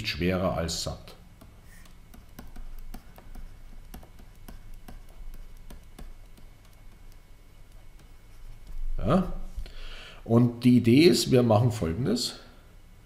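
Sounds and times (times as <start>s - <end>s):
stylus clicking on tablet screen: 1.4s - 8.8s.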